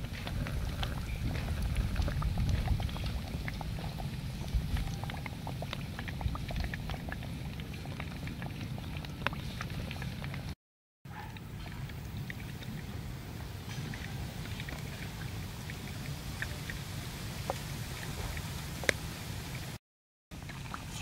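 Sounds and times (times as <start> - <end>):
low rumble: 0.0 - 7.2
oil sizzling and popping: 0.0 - 10.5.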